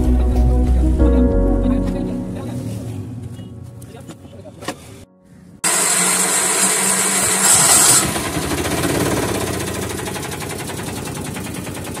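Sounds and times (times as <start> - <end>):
loud hiss: 5.6 - 8.1
single-cylinder engine running: 5.6 - 12.0.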